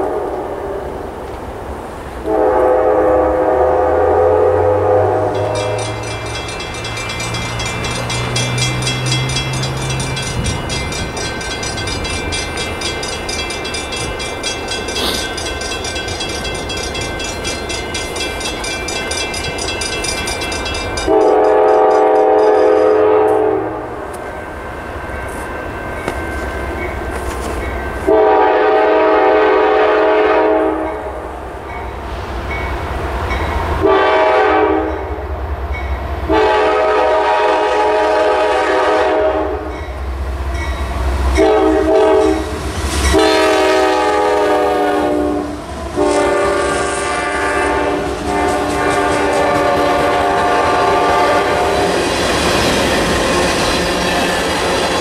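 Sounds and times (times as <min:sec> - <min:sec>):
locomotive air horn blasts: 0:00.0 - 0:00.9, 0:02.2 - 0:06.2, 0:21.1 - 0:24.0, 0:28.1 - 0:31.1, 0:33.8 - 0:35.0, 0:36.3 - 0:39.8, 0:41.4 - 0:51.9
low locomotive rumble: 0:00.0 - 0:55.0.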